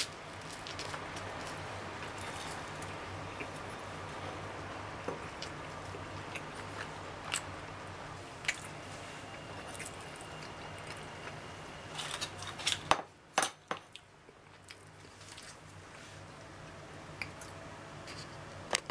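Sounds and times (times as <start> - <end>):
steady low hum: 0.0 - 18.9.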